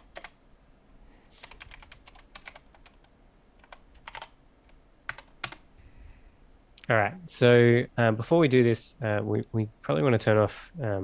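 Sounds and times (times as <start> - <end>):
computer keyboard typing: 0.0 - 0.4, 1.4 - 5.6.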